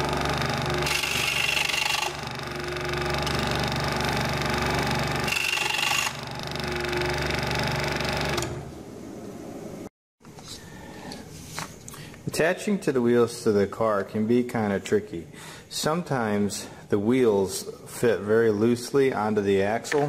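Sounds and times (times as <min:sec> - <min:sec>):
saw blade cutting wood: 0:00.0 - 0:07.2
scroll saw running: 0:00.0 - 0:08.7.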